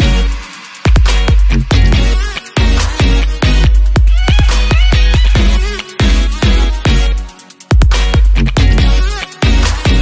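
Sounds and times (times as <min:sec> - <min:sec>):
deep bass line: 0:00.0 - 0:10.0
kick-drum beat: 0:00.0 - 0:10.0
synth melody: 0:01.8 - 0:07.6.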